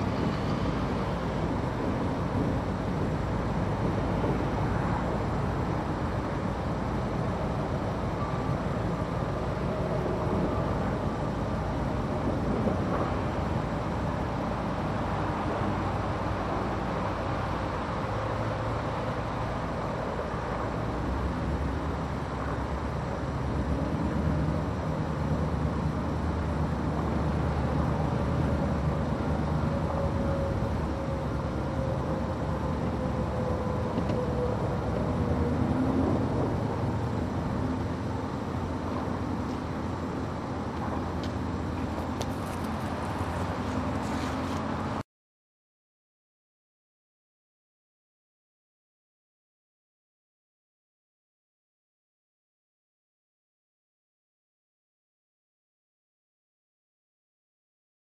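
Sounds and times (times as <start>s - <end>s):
diesel locomotive engine rumbling: 0.0s - 45.0s.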